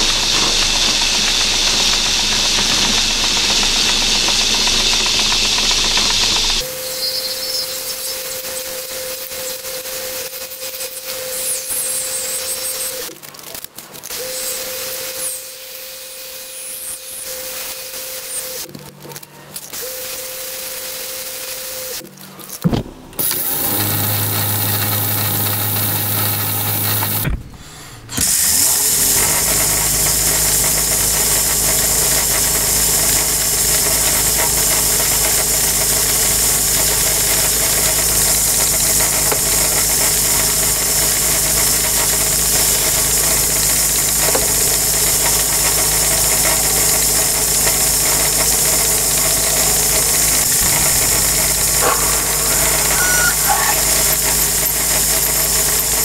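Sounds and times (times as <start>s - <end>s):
lathe running: 0.0s - 9.6s, 23.2s - 27.3s, 28.1s - 56.0s
high hiss: 48.1s - 56.0s.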